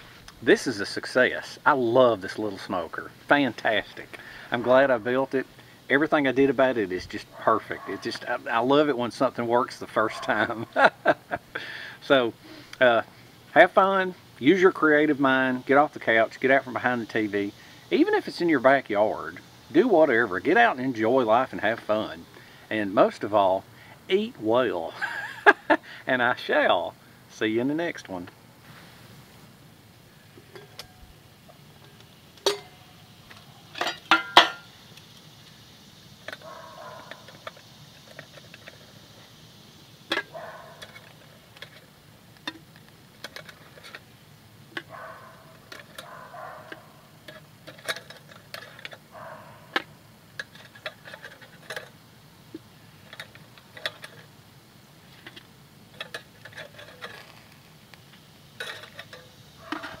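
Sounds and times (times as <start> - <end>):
metal lid clanking: 30.4 - 34.8, 40.1 - 41.8, 44.7 - 52.0, 53.0 - 54.3, 55.2 - 57.3, 58.6 - 60.0.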